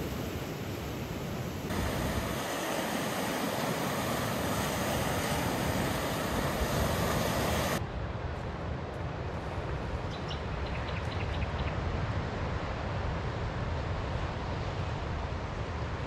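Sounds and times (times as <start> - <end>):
ocean surf breaking: 0.0 - 7.8
wind: 0.0 - 16.0.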